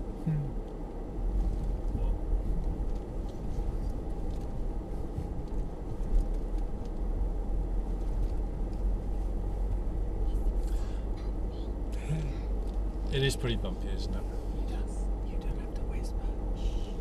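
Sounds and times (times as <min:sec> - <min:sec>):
car cabin rumble on dirt track: 0:00.0 - 0:17.0.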